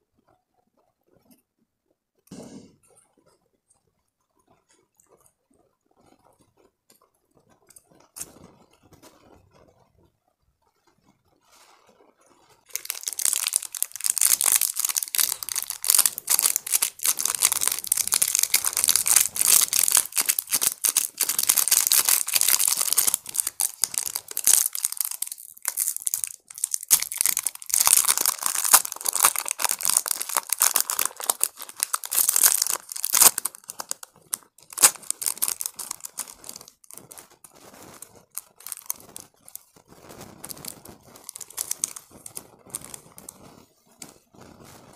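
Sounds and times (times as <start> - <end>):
wrapper crinkling: 12.6 - 44.8.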